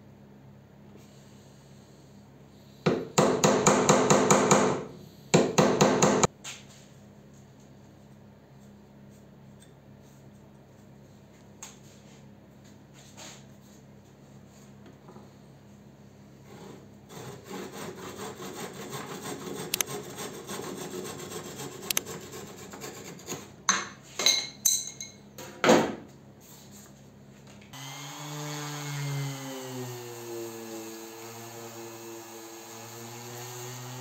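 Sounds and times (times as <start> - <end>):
hand saw cutting wood: 16.4 - 23.5.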